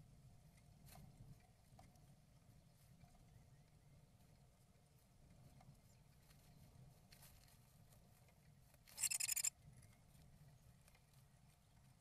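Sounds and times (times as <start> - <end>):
bird rustling and scratching moss: 4.1 - 12.0
rapid chattering bird call: 9.0 - 9.5.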